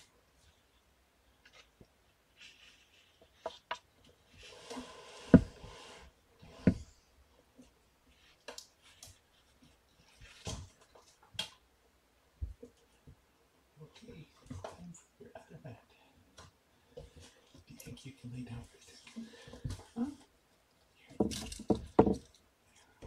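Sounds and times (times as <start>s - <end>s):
rustling and knocks: 6.4s - 7.0s, 21.1s - 22.4s.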